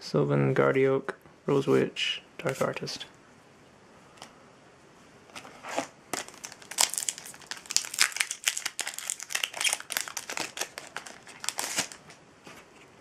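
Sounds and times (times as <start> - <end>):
foil wrapper crinkling and tearing: 5.7 - 12.2.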